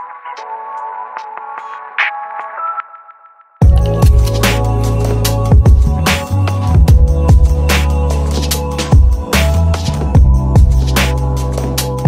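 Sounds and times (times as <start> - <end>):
electronic music: 0.0 - 12.0.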